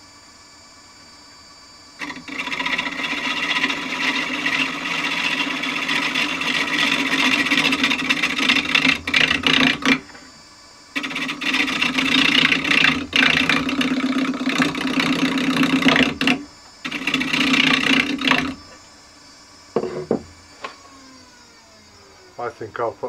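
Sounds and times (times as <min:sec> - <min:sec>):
turning tool cutting wood: 0:02.0 - 0:10.3, 0:10.9 - 0:18.8
wood lathe running: 0:02.0 - 0:10.3, 0:10.9 - 0:18.8, 0:19.8 - 0:21.4.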